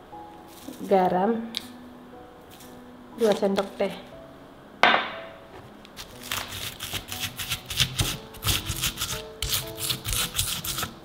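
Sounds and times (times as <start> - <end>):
stone pestle grinding and crunching: 6.0 - 11.0.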